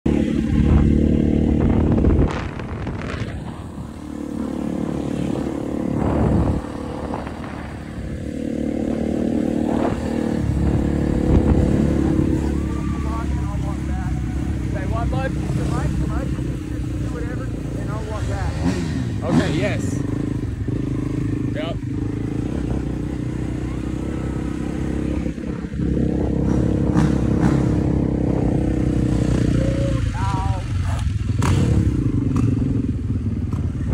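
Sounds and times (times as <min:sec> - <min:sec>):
motorcycle engine running: 0:00.1 - 0:33.9.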